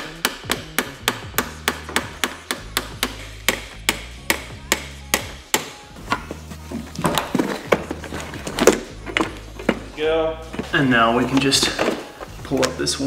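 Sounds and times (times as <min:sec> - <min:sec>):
hammer tapping metal: 0:00.0 - 0:06.2.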